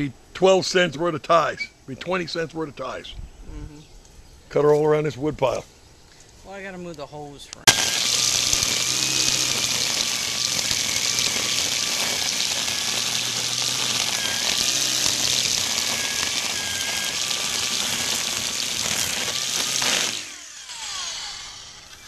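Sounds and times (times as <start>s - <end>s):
motor spinning down: 7.7s - 22.0s
string trimmer cutting grass: 7.7s - 22.0s.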